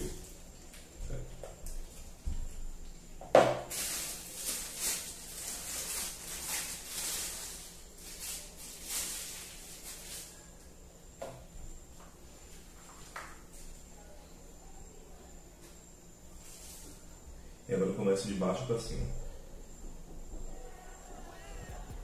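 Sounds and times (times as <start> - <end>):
plastic piping bag crinkling: 3.7 - 10.4.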